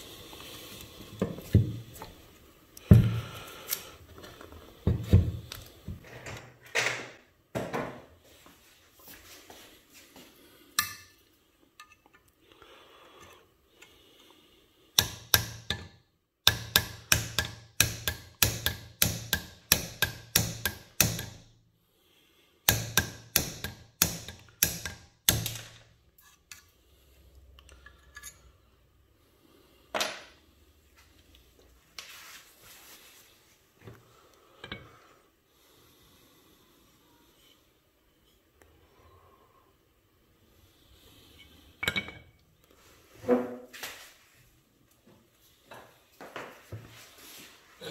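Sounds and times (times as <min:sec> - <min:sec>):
hammer striking metal: 0:15.0 - 0:21.5, 0:22.7 - 0:25.8.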